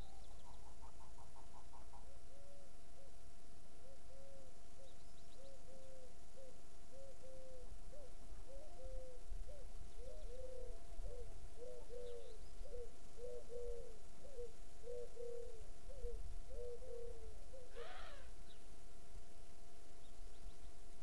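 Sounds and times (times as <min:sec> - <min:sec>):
bird hooting coos: 0:00.0 - 0:18.6
faint steady hum: 0:00.0 - 0:21.0.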